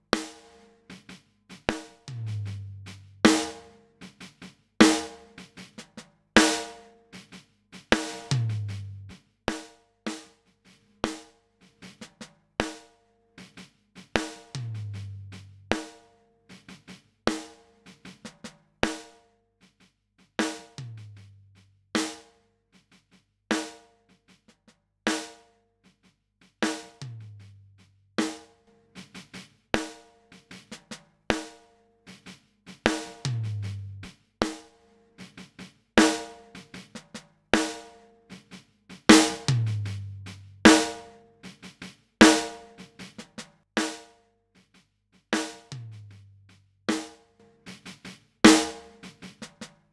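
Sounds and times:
drum loop: 0:01.8 - 0:03.6, 0:08.0 - 0:09.2, 0:14.5 - 0:15.8, 0:20.8 - 0:21.3, 0:27.0 - 0:27.5, 0:32.8 - 0:34.6, 0:39.0 - 0:41.1, 0:45.4 - 0:47.0, 0:47.7 - 0:49.7.

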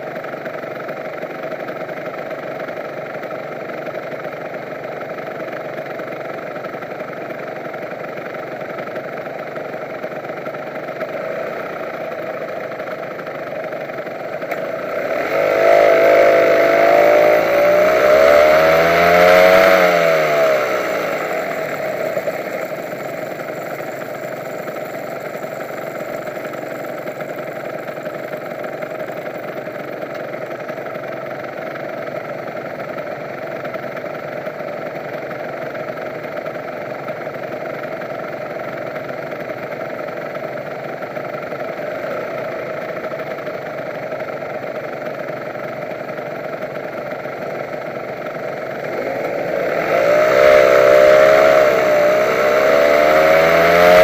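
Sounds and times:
motorcycle engine idling and revving: 0:00.0 - 0:54.0.

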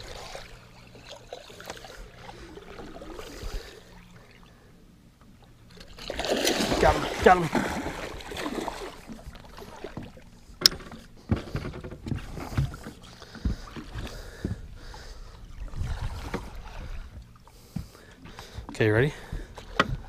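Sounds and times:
water sloshing: 0:00.0 - 0:20.0
fish thrashing in water: 0:05.7 - 0:10.2.

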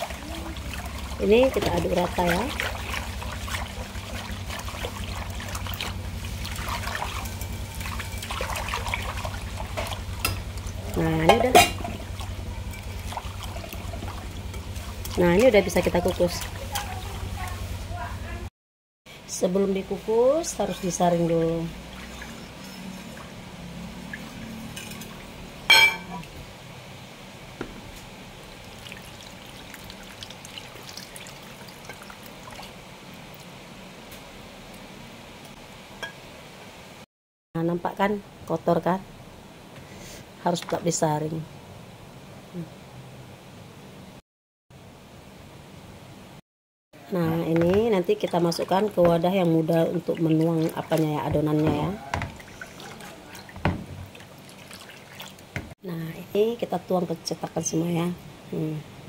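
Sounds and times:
glass bowl clink: 0:11.3 - 0:12.0, 0:25.7 - 0:26.2.

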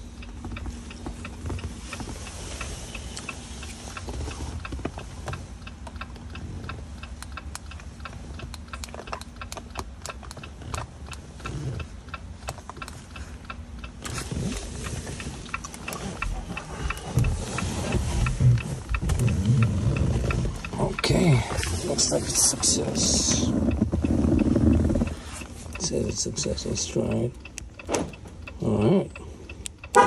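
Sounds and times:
low steady hum: 0:00.0 - 0:30.0
hazard light flasher ticking: 0:05.3 - 0:14.0.

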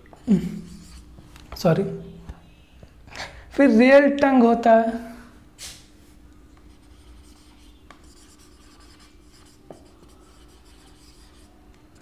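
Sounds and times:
marker rubbing on whiteboard: 0:00.6 - 0:01.1, 0:06.6 - 0:12.0.

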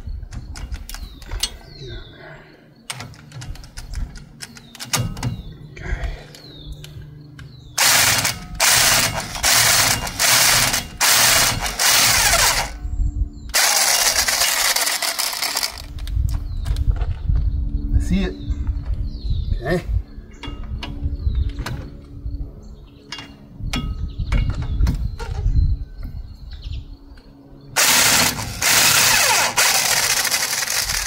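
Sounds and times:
bit clicking and rattling: 0:02.9 - 0:05.5, 0:06.8 - 0:12.8, 0:13.5 - 0:16.2, 0:27.8 - 0:31.0
air ratchet ratcheting: 0:07.8 - 0:12.8, 0:13.5 - 0:15.9, 0:27.8 - 0:31.0.

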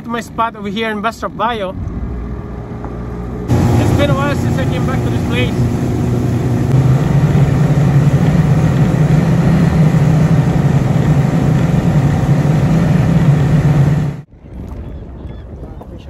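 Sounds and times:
outboard motor running: 0:01.8 - 0:14.2.

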